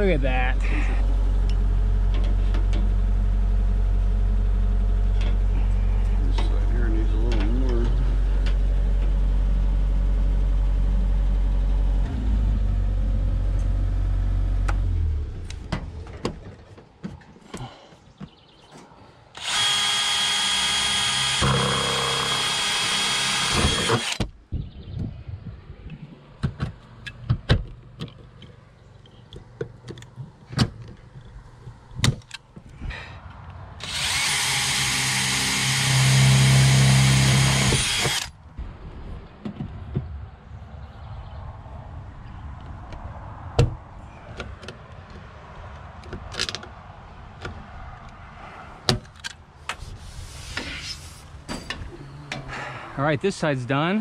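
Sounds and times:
steady low hum: 0.0s - 16.6s
cordless drill drilling into metal: 19.4s - 24.2s, 33.8s - 38.3s.

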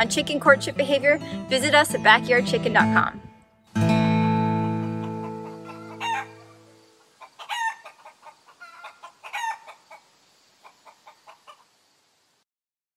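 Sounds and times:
strummed guitar chord: 2.2s - 5.3s
chickens clucking: 4.8s - 11.8s.

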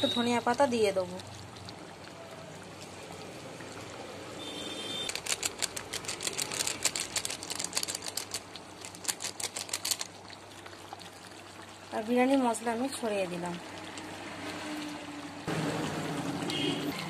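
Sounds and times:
plastic packet crinkling: 5.0s - 10.3s.

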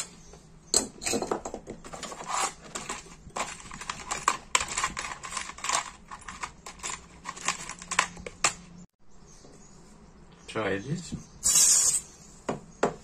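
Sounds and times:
metal bits rattling in plastic box: 1.1s - 8.4s.

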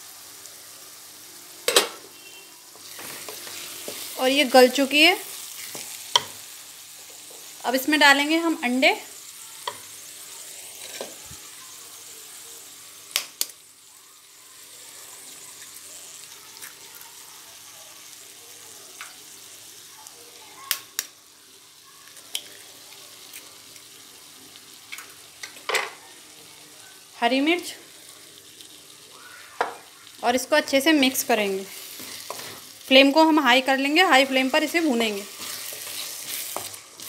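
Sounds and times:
oil sizzling in pan: 0.0s - 37.0s
eggs cracked on pan: 13.1s - 13.6s, 22.1s - 22.7s.

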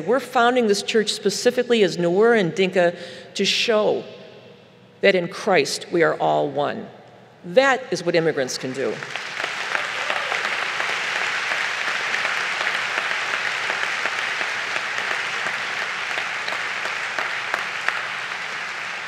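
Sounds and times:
large audience applauding: 8.9s - 19.0s.

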